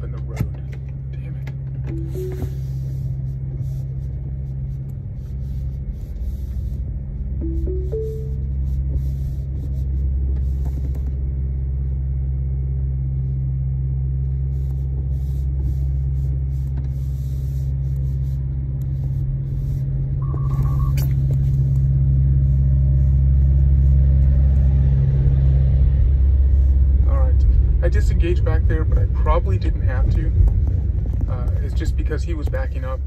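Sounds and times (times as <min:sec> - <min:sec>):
truck engine rumble: 0:00.0 - 0:33.0
short beep: 0:01.9 - 0:02.8, 0:07.4 - 0:08.6, 0:20.2 - 0:21.0.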